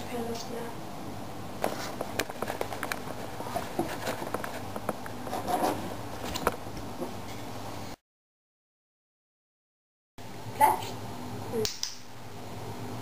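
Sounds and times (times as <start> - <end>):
puppy claws scratching on floor: 1.6 - 5.8.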